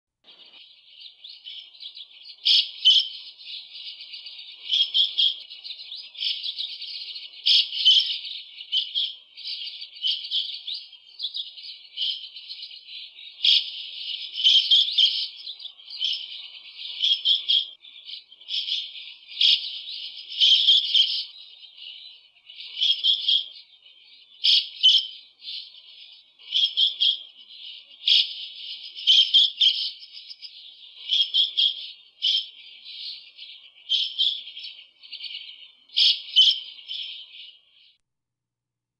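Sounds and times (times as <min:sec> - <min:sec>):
sharp bird calls: 0:00.2 - 0:38.0
starling chattering: 0:01.3 - 0:22.0, 0:22.6 - 0:23.5, 0:24.4 - 0:33.2.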